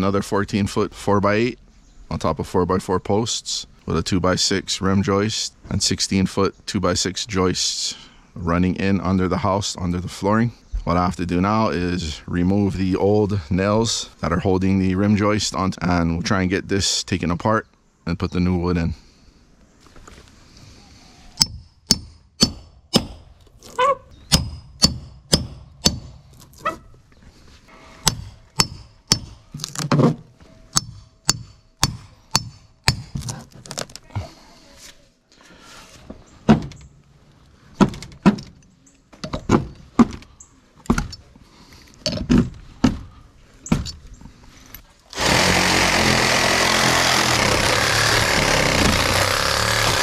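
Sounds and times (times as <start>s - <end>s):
hammer striking metal nail puller: 28.0s - 29.9s, 30.7s - 33.1s
reciprocating saw cutting wood: 45.1s - 50.0s.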